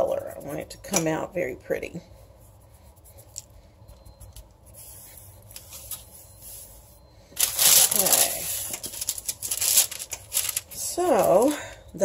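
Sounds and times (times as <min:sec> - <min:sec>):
parchment paper rustling: 0:04.3 - 0:11.7.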